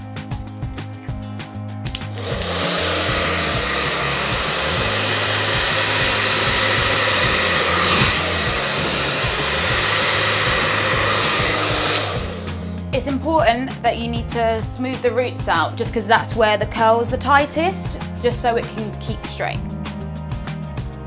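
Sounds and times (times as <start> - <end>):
background music: 0.0 - 21.0
hair dryer blowing: 1.9 - 12.9.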